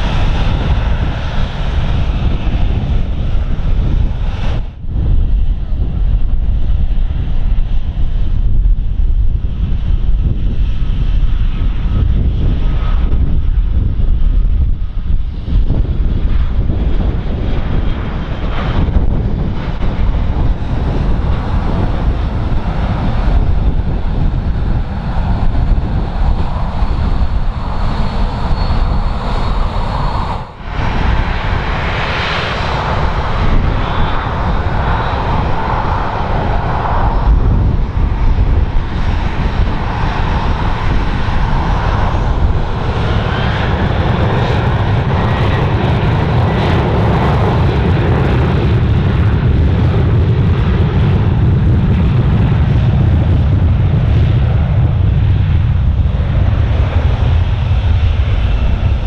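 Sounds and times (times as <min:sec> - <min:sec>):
jet engines with high whine: 0:00.0 - 0:59.0
wind buffeting microphone: 0:00.0 - 0:59.0.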